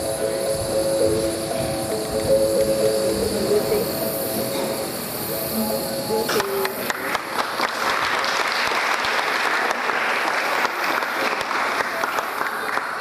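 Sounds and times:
held musical tone: 0:00.0 - 0:07.2
audience applauding: 0:06.3 - 0:13.0.

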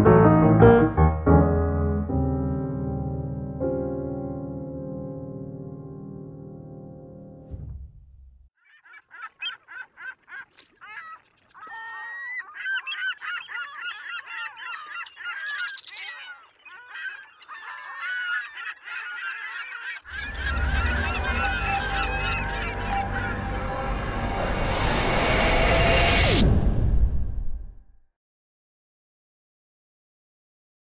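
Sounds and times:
music: 0:00.0 - 0:07.8, 0:20.1 - 0:26.6
loud whoosh: 0:07.4 - 0:08.5, 0:20.1 - 0:28.0
geese honking: 0:08.7 - 0:25.3.

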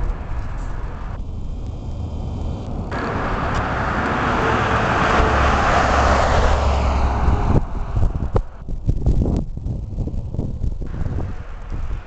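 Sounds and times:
vehicle passing close by: 0:00.0 - 0:08.6
low road rumble: 0:00.0 - 0:12.0.

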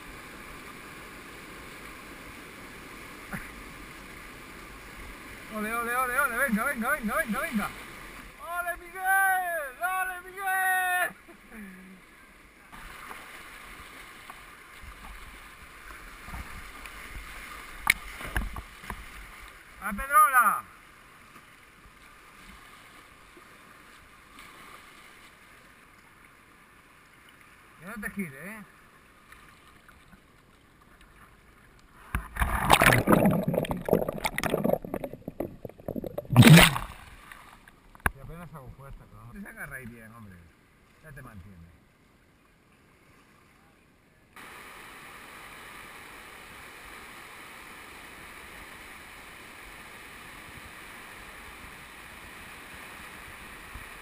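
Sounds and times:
paddle strokes splashing: 0:29.2 - 0:37.8
water rumbling against boat: 0:29.8 - 0:39.2.

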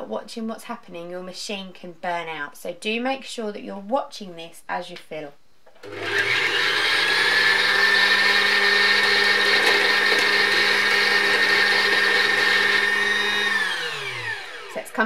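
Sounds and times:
sewing machine motor whining: 0:13.1 - 0:14.8.

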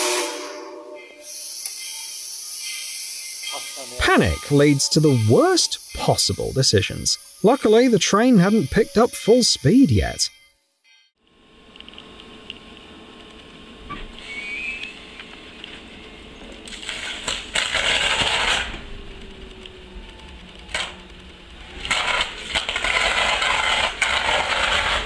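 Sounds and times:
sharp electric snaps: 0:01.4 - 0:01.9, 0:11.7 - 0:25.0
electric arcing crackle: 0:11.3 - 0:25.0
train running hum: 0:12.8 - 0:25.0.

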